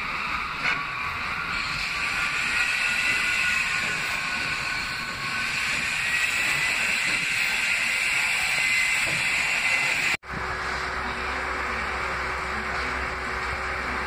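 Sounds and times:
train motors whining: 0.0 - 14.0
wheels rumbling on rails: 10.2 - 14.0.

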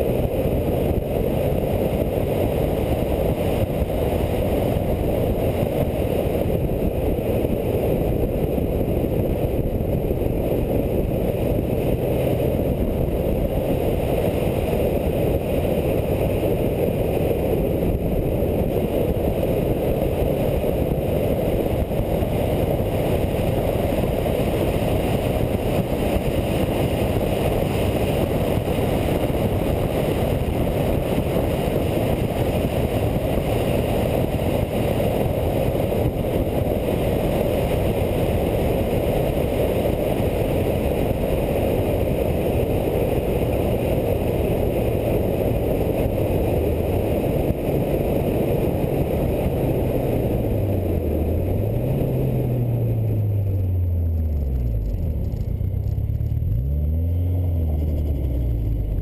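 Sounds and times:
wind and road noise: 0.0 - 59.0
car engine slowing: 48.6 - 59.0.

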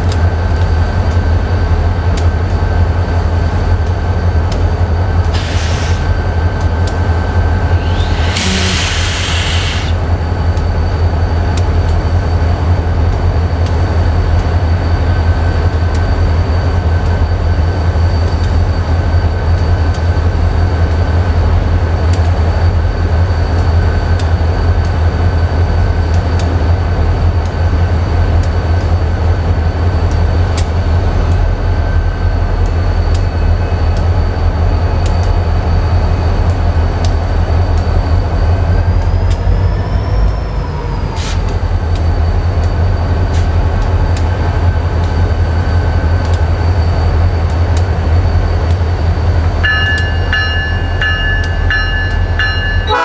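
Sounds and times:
freight train rumbling: 0.0 - 53.0
high-pitched wheel ring: 49.6 - 53.0.

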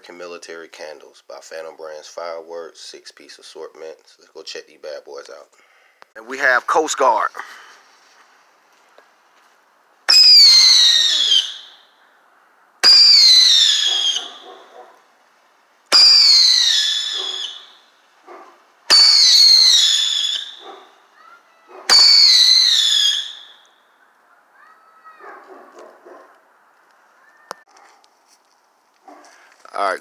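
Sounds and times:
falling whistle: 10.1 - 11.9, 12.8 - 14.4, 15.9 - 17.8, 18.9 - 20.6, 21.9 - 23.8.

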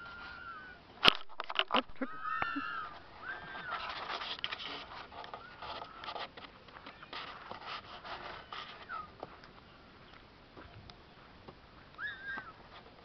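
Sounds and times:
rustling and clicking: 1.0 - 13.0
whistle-like chirps: 12.0 - 12.6.

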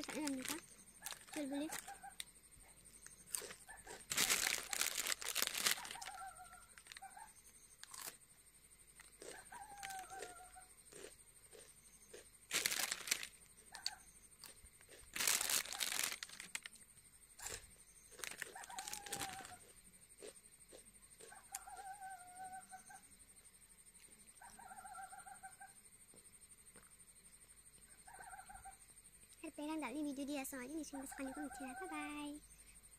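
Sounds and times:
plastic snack packet crinkling: 0.0 - 1.9, 3.3 - 6.2, 6.8 - 7.0, 7.8 - 8.1, 12.5 - 13.4, 14.4 - 16.7, 18.2 - 19.6
crunching snack: 0.0 - 2.3, 3.0 - 8.2, 8.9 - 16.8, 17.4 - 21.9.

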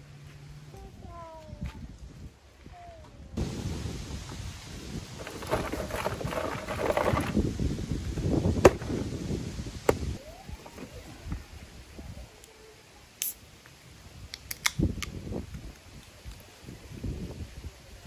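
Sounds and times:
ice and cans rattling: 5.2 - 7.4.

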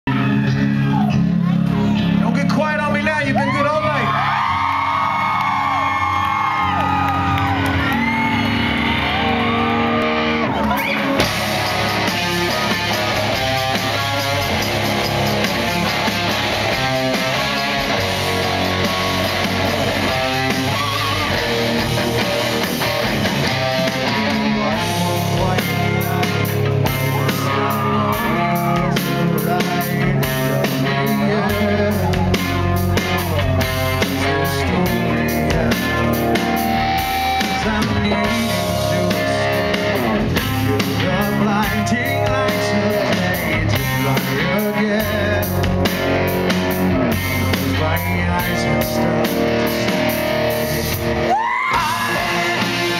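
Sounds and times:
live rock band playing: 0.1 - 52.9
man singing lead vocal: 16.8 - 22.6, 23.5 - 52.9.

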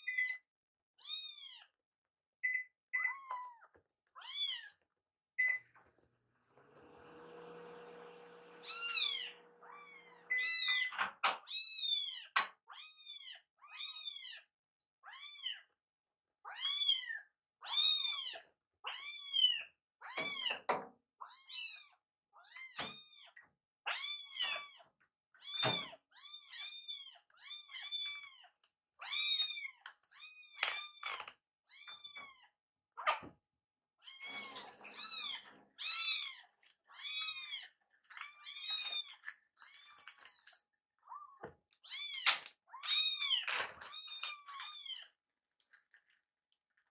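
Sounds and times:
kittens meowing: 3.0 - 4.8, 8.6 - 14.4, 15.0 - 15.8, 41.0 - 45.2.

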